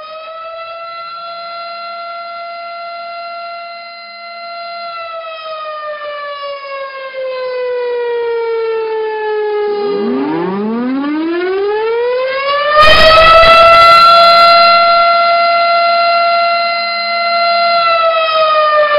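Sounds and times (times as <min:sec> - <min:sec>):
siren wailing: 0:00.0 - 0:18.9.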